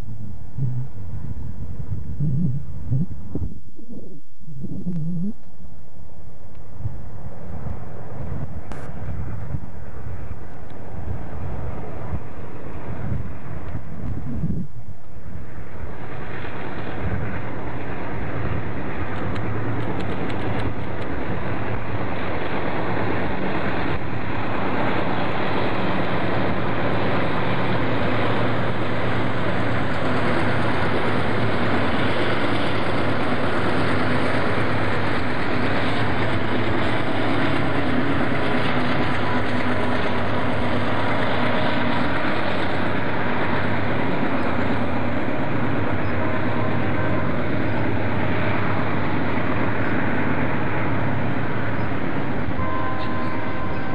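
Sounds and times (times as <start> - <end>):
wind on microphone: 0.0 - 50.7
freight locomotives passing: 0.0 - 53.9.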